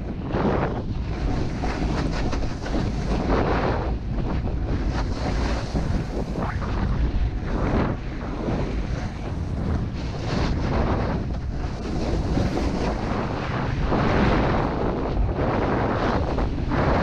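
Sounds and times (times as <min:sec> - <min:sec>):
wind buffeting microphone: 0:00.0 - 0:17.0
snowboard sliding on snow: 0:00.3 - 0:17.0.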